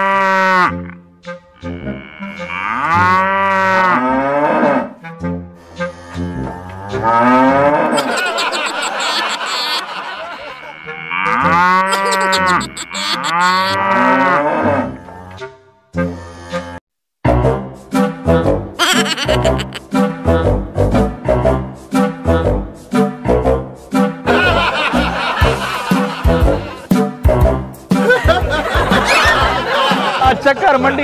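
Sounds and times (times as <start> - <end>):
cattle mooing: 1.6 - 4.6, 10.6 - 14.5.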